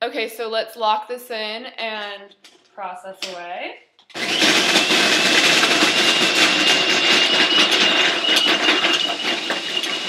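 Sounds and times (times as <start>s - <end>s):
food processor motor whine: 4.1s - 10.0s.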